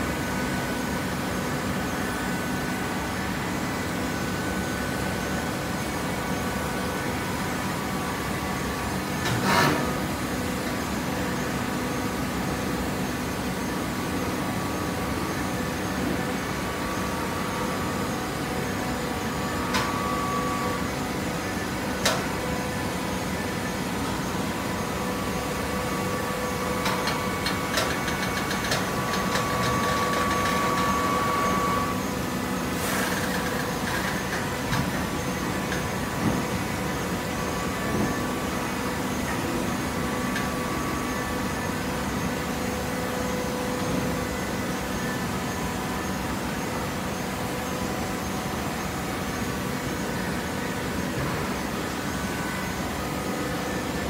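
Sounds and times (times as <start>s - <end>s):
high steady whine: 0.0s - 54.0s
hydraulic baler humming: 13.9s - 54.0s.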